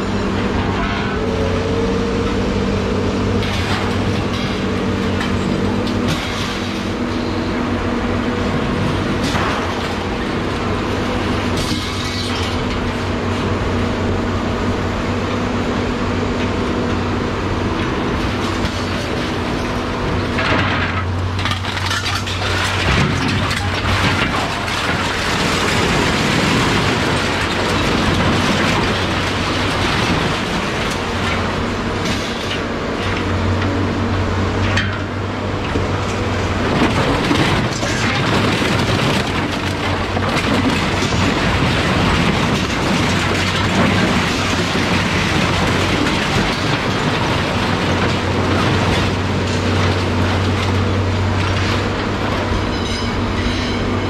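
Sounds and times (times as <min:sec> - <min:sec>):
loud rattling and clattering: 0:03.3 - 0:07.8, 0:17.8 - 0:33.4, 0:34.6 - 0:52.7.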